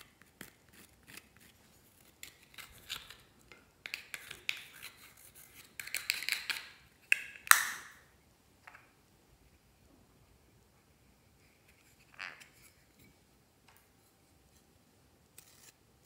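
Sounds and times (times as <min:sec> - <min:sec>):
tool scraping powder in a compact: 0:03.9 - 0:06.6, 0:15.4 - 0:15.8.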